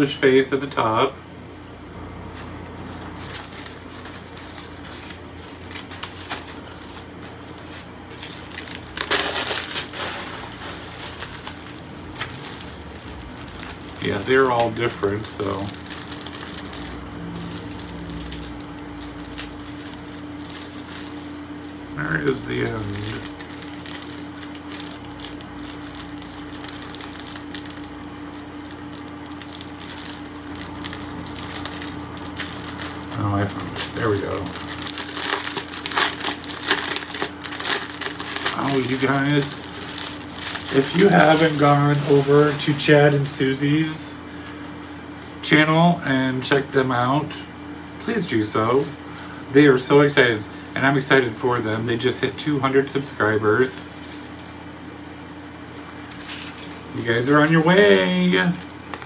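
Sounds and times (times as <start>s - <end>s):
steady low hum: 0.0s - 59.0s
packaging wrapper rustling: 2.4s - 43.4s, 55.8s - 59.0s
plastic bags crinkling: 2.9s - 43.4s, 55.9s - 59.0s.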